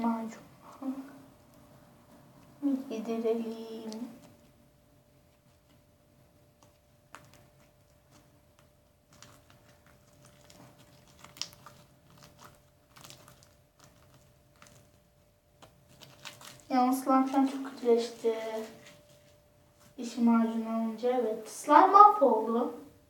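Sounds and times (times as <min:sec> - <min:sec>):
slime squelching and popping: 0:06.5 - 0:19.0.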